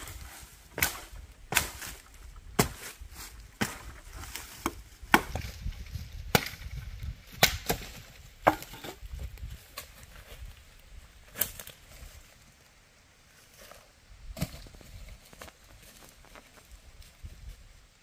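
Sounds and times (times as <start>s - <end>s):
machete chopping tree trunk: 0.7s - 3.0s, 3.6s - 9.0s.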